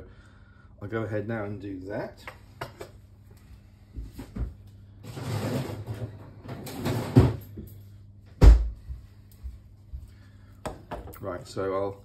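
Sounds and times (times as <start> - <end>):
kitchen rustling and scraping: 2.4 - 7.9.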